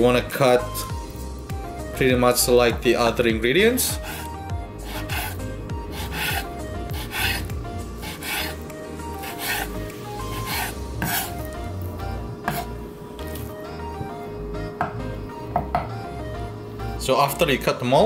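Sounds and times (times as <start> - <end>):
knife slicing meat on wooden board: 3.9 - 11.6, 12.4 - 13.5.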